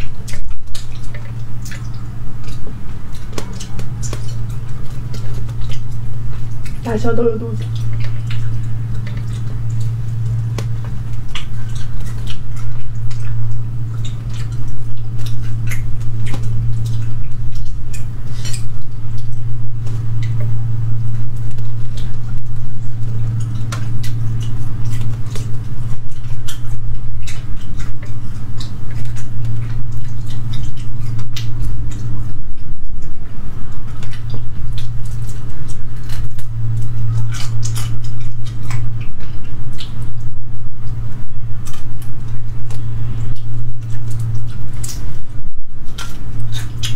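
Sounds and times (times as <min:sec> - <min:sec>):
chewing: 0:00.0 - 0:46.9
low hum: 0:00.0 - 0:46.9.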